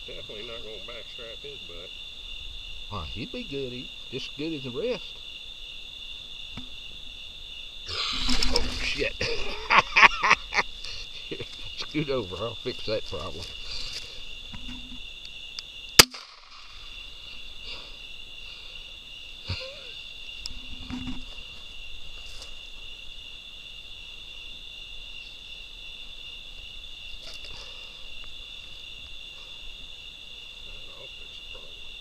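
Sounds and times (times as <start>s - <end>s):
night insects chorus: 0.0s - 32.0s
handgun shot: 16.0s - 16.6s.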